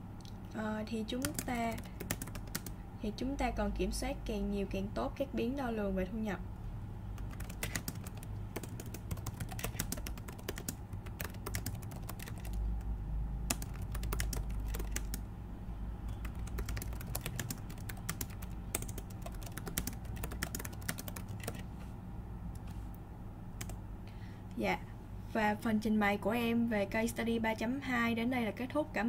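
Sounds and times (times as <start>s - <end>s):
typing on computer keyboard: 1.1s - 2.8s, 7.2s - 12.9s, 13.5s - 15.2s, 16.1s - 21.6s, 23.6s - 23.8s.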